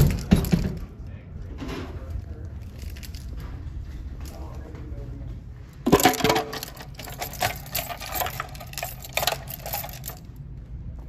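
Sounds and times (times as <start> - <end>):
door hardware clicks and rattles: 0.0 - 1.0, 5.9 - 10.3.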